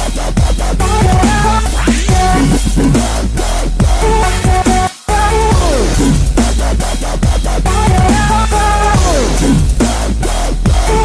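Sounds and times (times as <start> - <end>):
electronic dance music: 0.8 - 6.6, 7.3 - 10.0.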